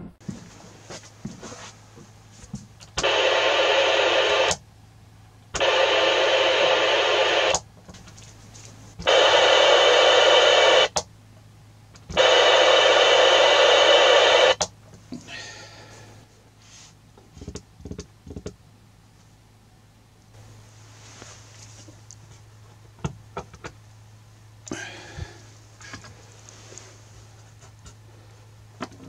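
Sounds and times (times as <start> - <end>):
faint hum: 0.0 - 29.0
radio interference noise bursts: 3.0 - 4.6, 5.6 - 7.6, 9.0 - 11.0, 12.1 - 14.7.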